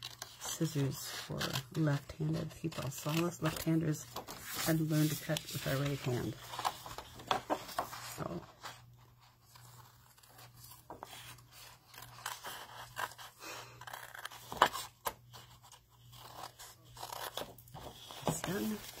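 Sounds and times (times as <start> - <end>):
scissors snipping paper: 0.0 - 4.0, 11.8 - 15.4, 16.0 - 19.0.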